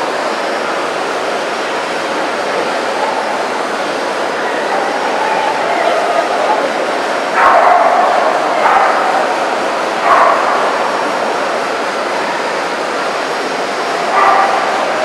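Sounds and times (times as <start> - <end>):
crowd chatter: 0.0 - 15.0
dogs barking: 4.7 - 11.2, 14.0 - 15.0.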